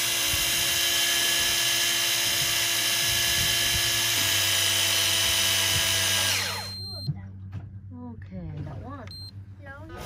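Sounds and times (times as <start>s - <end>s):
fishing reel motor whining: 0.0s - 6.8s.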